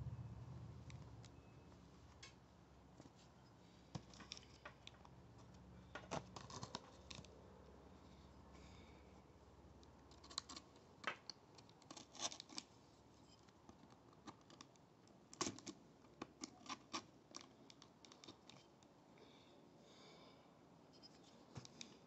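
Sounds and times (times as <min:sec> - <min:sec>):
fingers scratching packing tape: 0:11.7 - 0:12.7.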